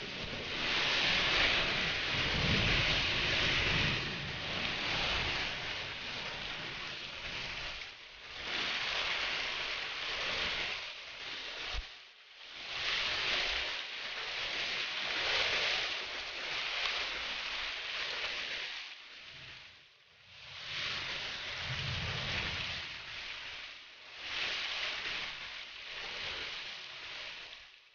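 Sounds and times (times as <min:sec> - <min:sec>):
gusting wind: 0:00.0 - 0:10.8, 0:20.3 - 0:27.6
torrential rain: 0:00.0 - 0:27.9.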